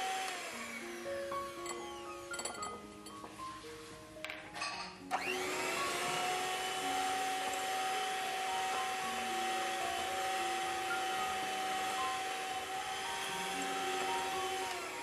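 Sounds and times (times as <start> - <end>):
electric hand mixer whine: 0.0 - 2.8, 5.0 - 15.0.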